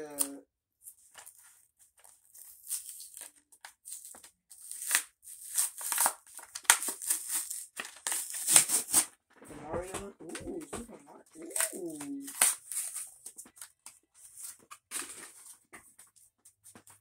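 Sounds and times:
foil wrapper crinkling and tearing: 0.1 - 9.1, 11.3 - 15.7.

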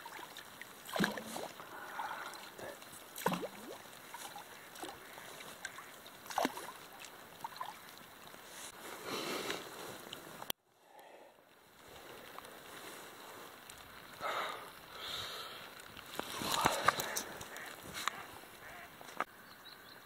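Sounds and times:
paddle splashing in river water: 0.0 - 10.5, 15.8 - 19.2
trickling water: 0.0 - 19.3.

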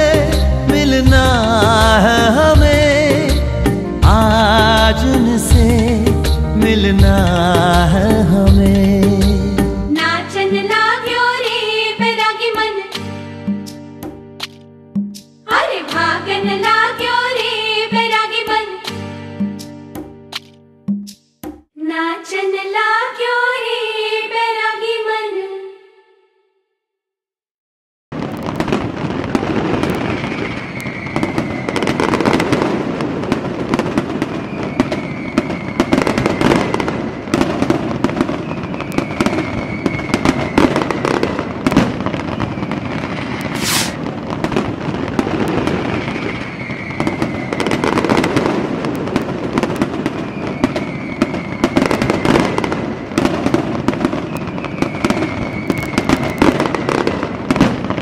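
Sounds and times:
fireworks crackling and popping: 0.0 - 6.4, 28.1 - 58.0
firework shrill whine: 30.0 - 32.6, 34.3 - 37.2, 38.4 - 41.3, 42.3 - 44.0, 46.0 - 48.3, 50.2 - 53.0, 54.2 - 57.0.

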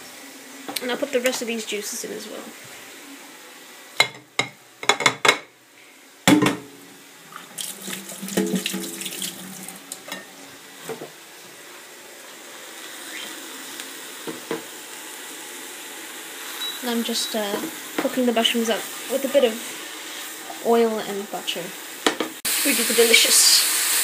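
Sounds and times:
tap running into sink: 7.6 - 10.2.

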